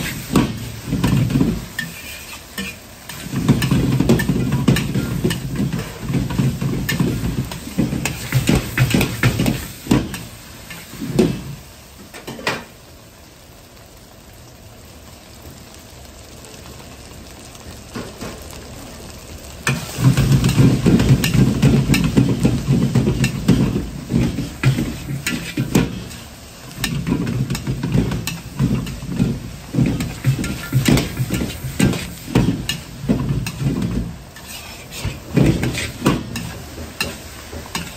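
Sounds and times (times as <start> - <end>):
metal ladle scraping a wok: 0.0 - 11.2, 19.7 - 37.9
rice sizzling: 0.0 - 37.9.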